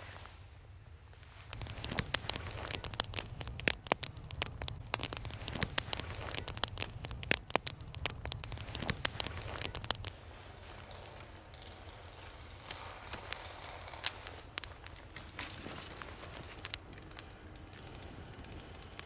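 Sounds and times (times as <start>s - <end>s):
kindling snapping and crackling: 1.3s - 19.0s.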